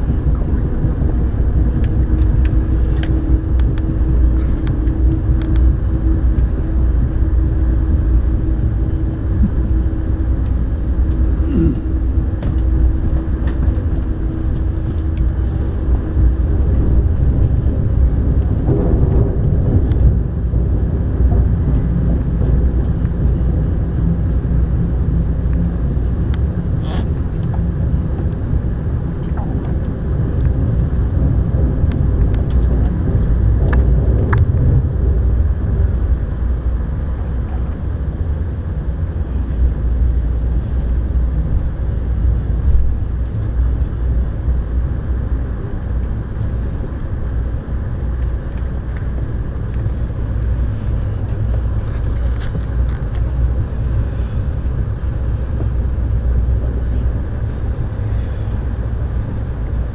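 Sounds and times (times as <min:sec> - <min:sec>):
train wheels rumbling on track: 0:00.0 - 0:59.9.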